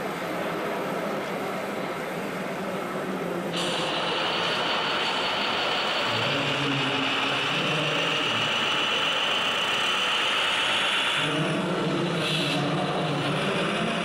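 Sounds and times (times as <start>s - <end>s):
high drive whine: 3.5s - 14.0s.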